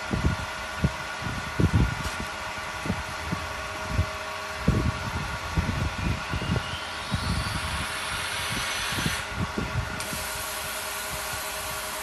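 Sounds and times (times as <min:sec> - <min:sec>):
machine mechanical hum: 0:00.0 - 0:12.0
machine hiss: 0:06.8 - 0:09.3, 0:10.0 - 0:12.0.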